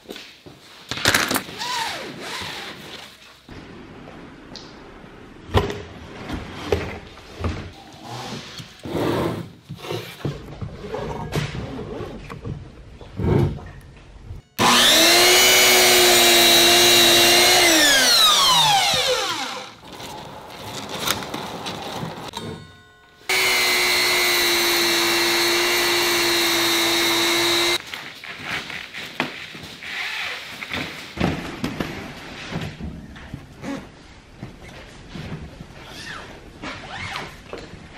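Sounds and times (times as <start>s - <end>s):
electric circular cutter whining: 14.6s - 19.8s, 23.3s - 27.8s.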